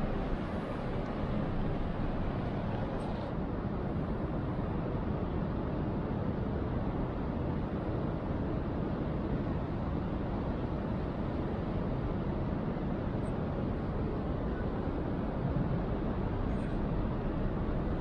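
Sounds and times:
low rumbling noise: 0:00.0 - 0:04.2.

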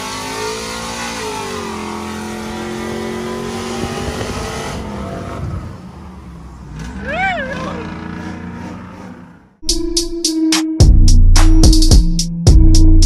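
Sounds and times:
road and wind noise: 0:00.0 - 0:09.6
truck engine cruising: 0:00.0 - 0:09.7.

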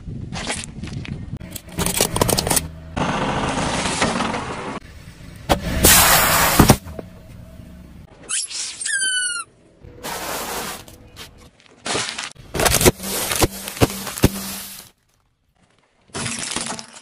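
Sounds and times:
car rumble: 0:01.3 - 0:08.2.

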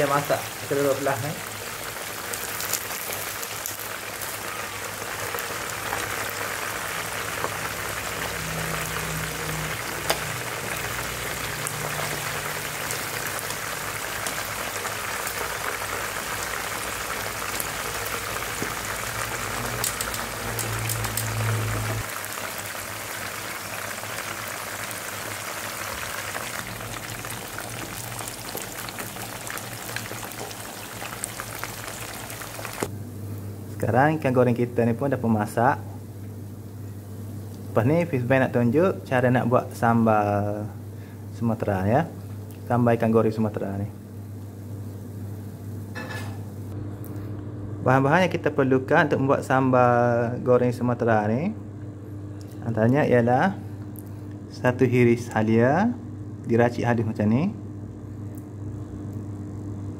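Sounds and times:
fish sizzling in hot oil: 0:00.0 - 0:32.9.

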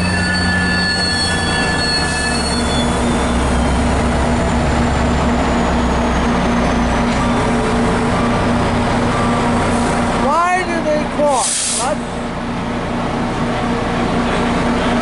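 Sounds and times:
train wheel squeal: 0:00.0 - 0:04.6, 0:05.3 - 0:07.6
diesel locomotive engine drone: 0:00.0 - 0:15.0.

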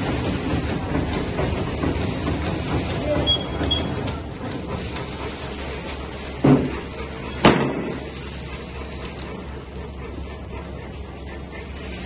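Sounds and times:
sharp knocks: 0:07.4 - 0:08.0.

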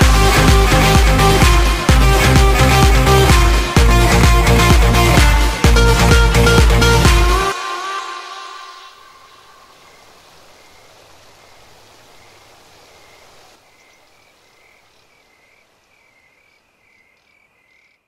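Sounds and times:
steady hiss: 0:07.5 - 0:15.9
frog chirping: 0:13.0 - 0:18.0.

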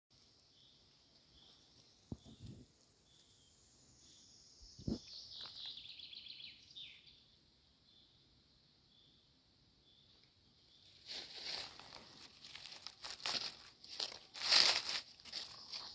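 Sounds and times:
birds singing short high notes: 0:03.4 - 0:07.2
footsteps in dry leaves: 0:10.9 - 0:15.9.

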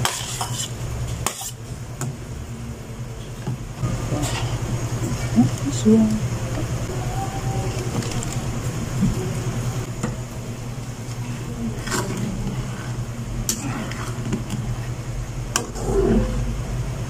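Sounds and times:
spatula stirring soup in wok: 0:00.0 - 0:01.6
low hum: 0:00.6 - 0:17.0.

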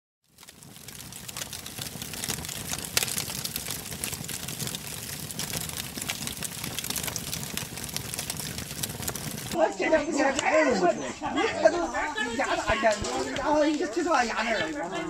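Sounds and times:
wood fire crackling and popping: 0:00.2 - 0:09.6, 0:12.4 - 0:15.0.

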